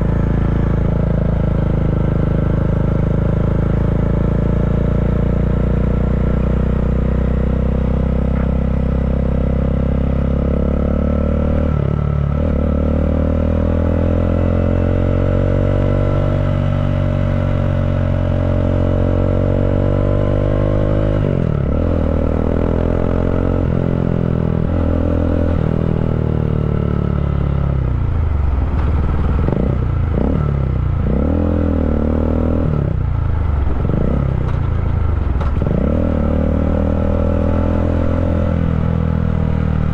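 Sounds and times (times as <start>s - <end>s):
motorcycle exhaust note: 0.0s - 28.2s.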